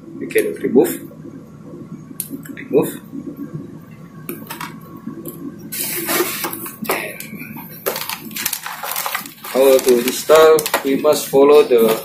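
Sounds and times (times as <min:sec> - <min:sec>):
plastic bag crinkling: 0:07.7 - 0:11.3.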